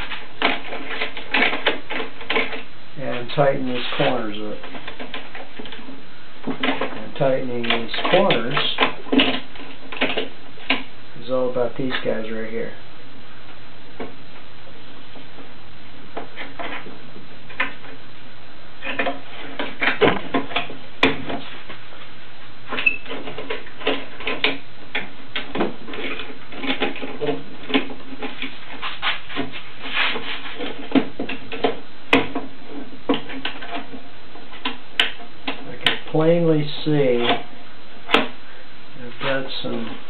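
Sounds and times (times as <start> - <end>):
steady background hiss: 0.0 - 40.0.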